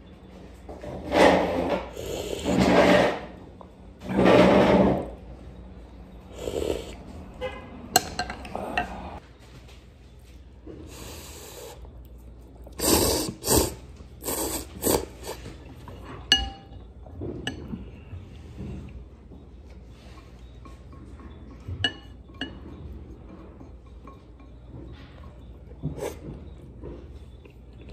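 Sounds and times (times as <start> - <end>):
utensils clinking on ceramic bowl: 7.9 - 9.1, 15.8 - 18.1, 20.0 - 25.9
noodles being slurped: 12.6 - 15.9.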